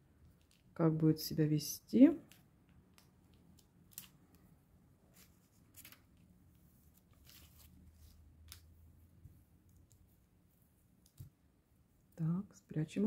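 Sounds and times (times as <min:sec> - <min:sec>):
plastic sleeve rustling: 0:02.9 - 0:08.8.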